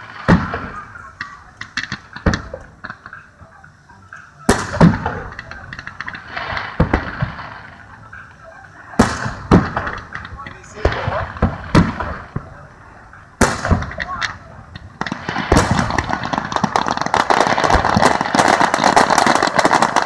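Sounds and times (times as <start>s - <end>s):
fireworks bursting with booms: 0.0s - 3.6s, 4.2s - 20.0s
fireworks crackling: 0.0s - 20.0s.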